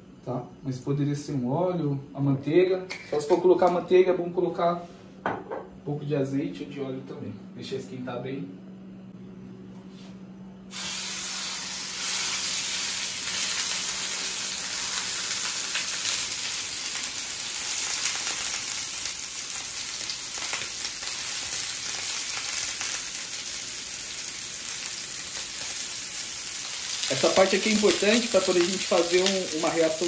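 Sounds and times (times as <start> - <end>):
meat sizzling in a frying pan: 10.7 - 30.0.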